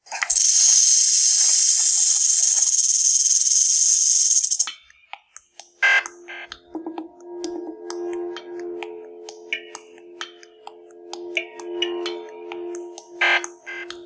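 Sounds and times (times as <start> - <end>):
rattlesnake tail rattling: 0.1 - 4.7
soft ringing music tones: 4.6 - 14.0.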